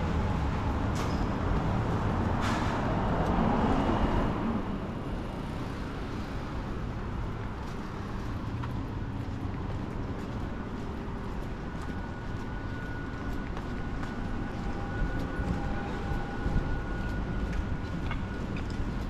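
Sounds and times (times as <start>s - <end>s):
passing vehicles: 0.0s - 19.0s.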